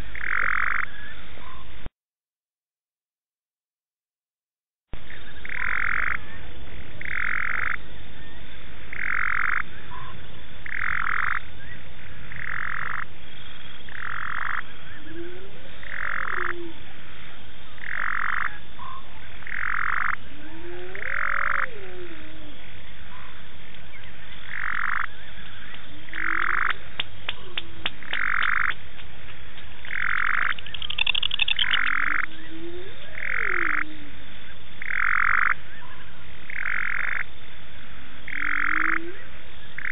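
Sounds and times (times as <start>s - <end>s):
low rising and falling frog call: 0.0s - 1.2s, 8.9s - 16.8s, 17.8s - 22.8s, 24.4s - 26.8s, 29.8s - 35.8s, 38.2s - 39.9s
frog short call: 29.8s - 34.1s
quick clicks: 30.5s - 31.9s.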